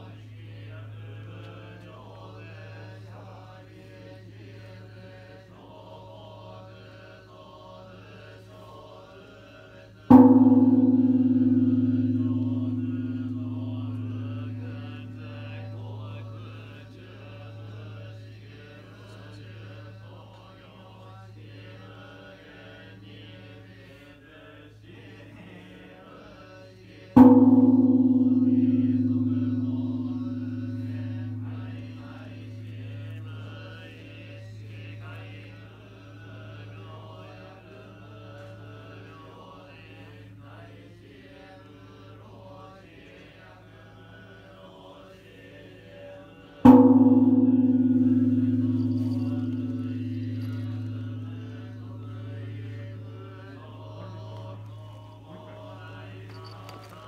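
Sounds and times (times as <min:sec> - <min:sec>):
low sutra chanting: 0:00.0 - 0:57.0
large temple bell tolling: 0:10.1 - 0:23.7, 0:27.2 - 0:57.0.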